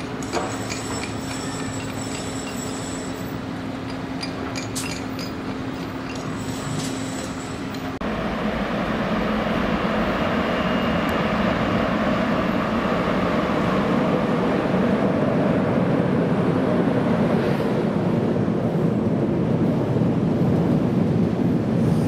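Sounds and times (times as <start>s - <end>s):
distant train passing with hum: 0.0s - 22.0s
electric locomotive rumble: 0.0s - 22.0s.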